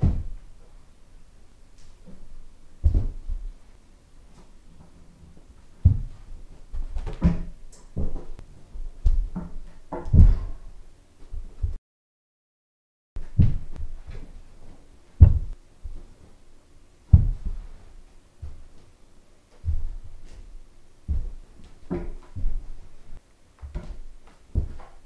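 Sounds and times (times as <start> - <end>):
feet thudding on carpeted floor: 2.0 - 3.6, 5.8 - 10.6, 13.2 - 14.4, 15.2 - 16.1, 17.1 - 18.9, 19.5 - 25.0.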